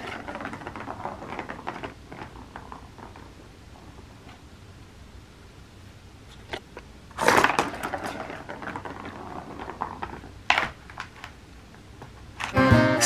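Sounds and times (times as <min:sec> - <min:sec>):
plastic ball rattling in a track: 0:00.0 - 0:03.9, 0:07.2 - 0:11.4.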